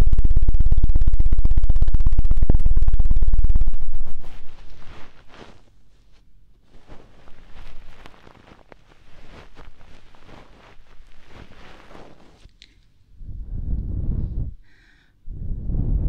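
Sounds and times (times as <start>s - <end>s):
fingers rubbing microphone: 3.3s - 12.5s.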